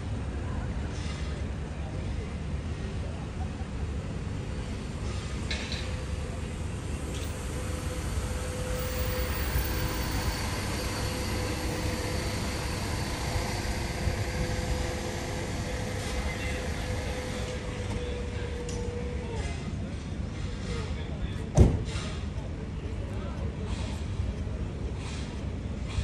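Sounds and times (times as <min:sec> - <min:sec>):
low machinery rumble: 0:00.0 - 0:26.0
thin steady whine: 0:06.3 - 0:19.2.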